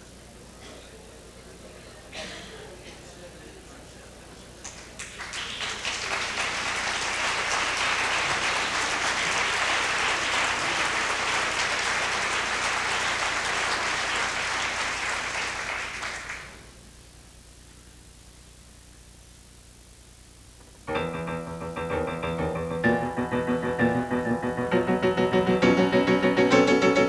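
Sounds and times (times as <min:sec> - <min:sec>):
audience applauding: 0:04.7 - 0:16.7.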